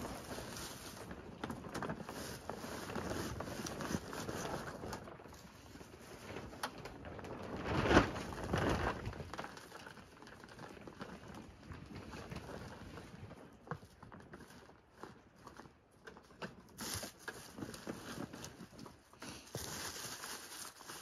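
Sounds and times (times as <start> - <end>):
dry leaves rustling and crunching: 0.0 - 6.5, 16.7 - 21.0.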